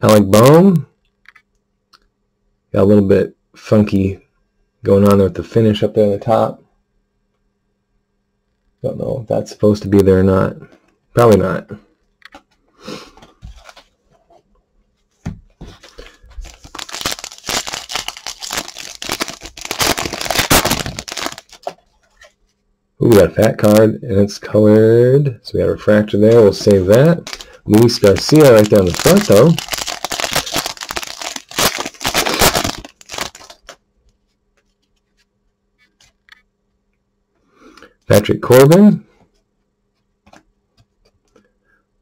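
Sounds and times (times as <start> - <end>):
foil wrapper crinkling: 15.7 - 22.4, 26.3 - 33.8.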